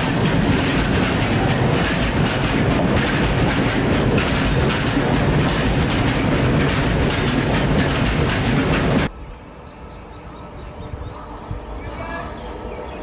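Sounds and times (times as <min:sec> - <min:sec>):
wheels clattering over rail joints: 0:00.0 - 0:09.1
train wheels rumbling on rails: 0:00.0 - 0:09.2.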